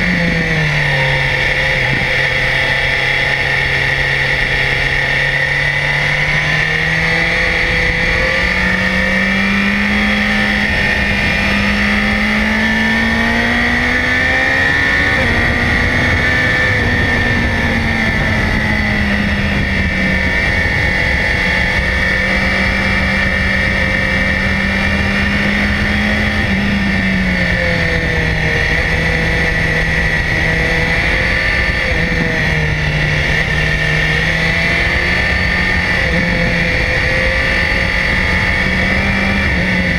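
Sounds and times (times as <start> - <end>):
motorcycle engine: 0.0 - 39.9
wind rush: 0.0 - 39.9.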